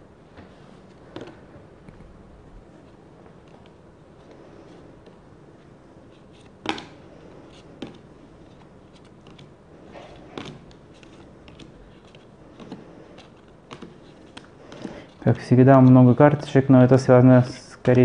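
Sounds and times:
cards sliding: 0:06.0 - 0:15.9.

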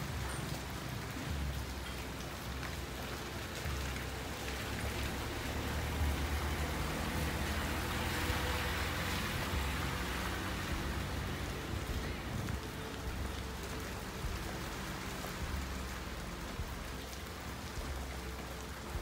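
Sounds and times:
rain on street and rooftops: 0:00.0 - 0:19.0
low rumble: 0:03.6 - 0:19.0.

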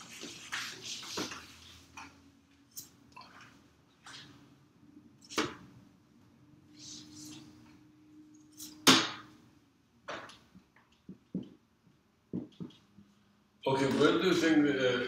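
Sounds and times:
eraser rubbing on a whiteboard: 0:00.0 - 0:01.9, 0:06.7 - 0:07.6
marker squeaking on a whiteboard: 0:06.7 - 0:07.7
knocks on a whiteboard: 0:12.3 - 0:12.8.

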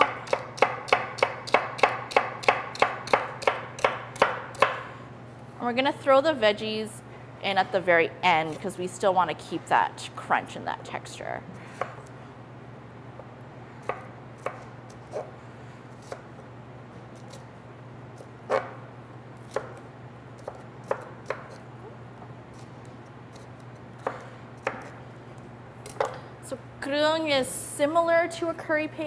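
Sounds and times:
knife chopping on wooden board: 0:00.0 - 0:04.9, 0:13.8 - 0:15.3, 0:18.5 - 0:18.8, 0:20.4 - 0:21.6, 0:24.0 - 0:25.0
steady low hum: 0:00.0 - 0:29.0.

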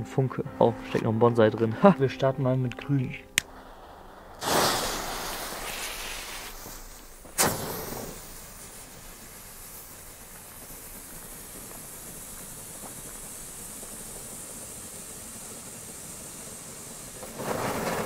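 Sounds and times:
sharp crack: 0:02.7 - 0:09.2
firework fountain hissing: 0:03.4 - 0:18.0.

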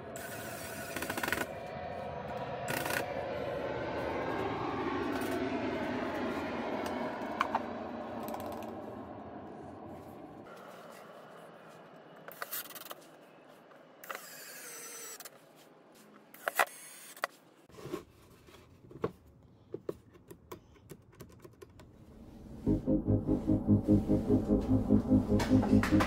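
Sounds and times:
loud rhythmic music: 0:22.7 - 0:26.0.

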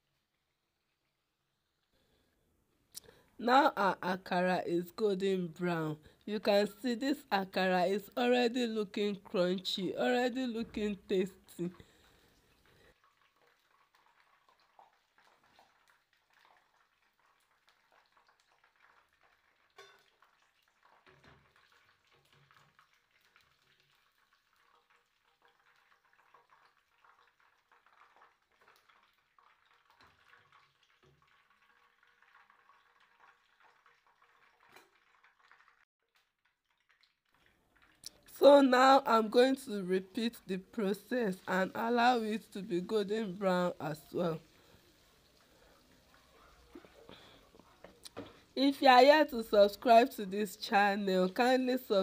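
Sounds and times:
oil sizzling and crackling: 0:08.9 - 0:52.0.

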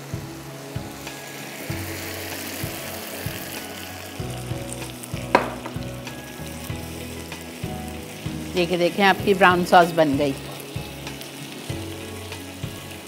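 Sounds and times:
sauce sizzling in a frying pan: 0:00.0 - 0:13.0
sharp knock on pan: 0:05.3 - 0:05.8.

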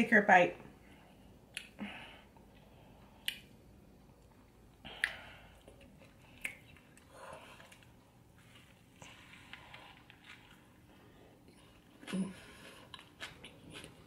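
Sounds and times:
wet chewing: 0:04.1 - 0:14.0.

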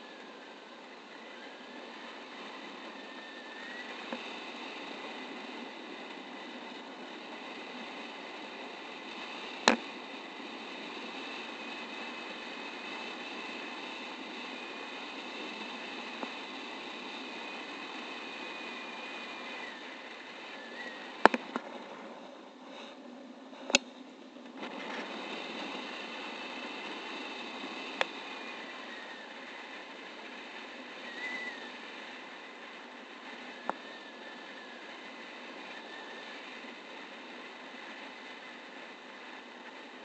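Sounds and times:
wind rushing over camera: 0:00.0 - 0:40.0.

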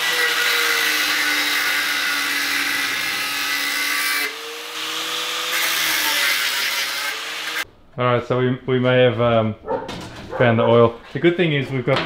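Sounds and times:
angle grinder cutting steel: 0:00.0 - 0:07.7.

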